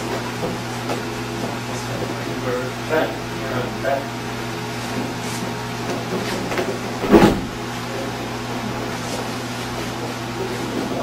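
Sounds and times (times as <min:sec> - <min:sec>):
steady low hum: 0:00.0 - 0:11.0
body thudding on a mat: 0:06.0 - 0:07.6.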